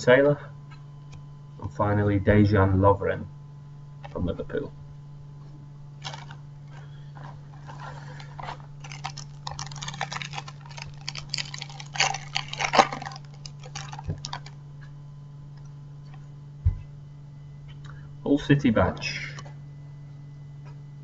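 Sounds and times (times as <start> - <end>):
steady low hum: 0.0 - 21.0
plastic packet crinkling: 6.0 - 6.4, 7.5 - 14.6.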